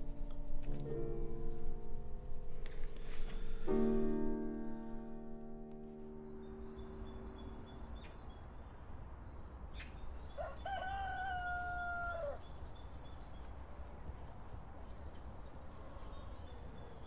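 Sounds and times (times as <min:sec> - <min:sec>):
piano notes: 0:00.0 - 0:09.6
small birds chirping: 0:06.1 - 0:17.0
rooster crowing: 0:10.2 - 0:12.5.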